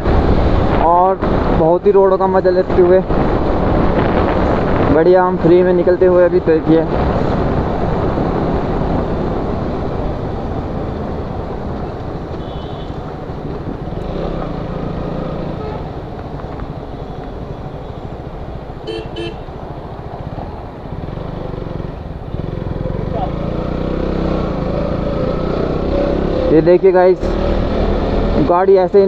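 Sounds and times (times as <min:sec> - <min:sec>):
motorcycle riding at speed: 0:00.0 - 0:29.0
vehicle horn tooting: 0:12.4 - 0:13.0, 0:15.6 - 0:15.9, 0:18.8 - 0:19.5.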